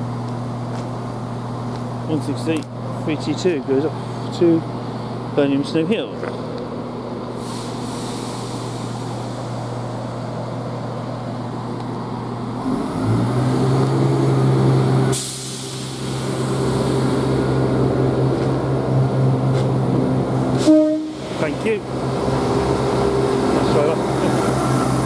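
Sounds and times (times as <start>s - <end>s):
train diesel engines: 0.0s - 25.0s
air hiss: 7.4s - 9.5s, 15.1s - 17.2s.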